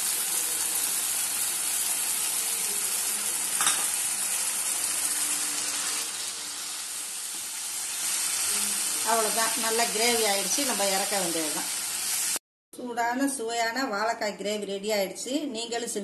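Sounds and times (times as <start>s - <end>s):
gravy sizzling in a pan: 0.0s - 12.4s.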